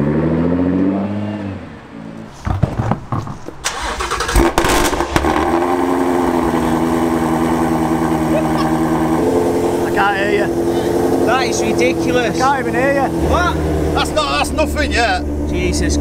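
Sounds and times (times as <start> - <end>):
knocks and clunks: 2.4 - 5.3
car engine settling to idle: 3.6 - 12.0
loud car engine idling: 3.8 - 16.0.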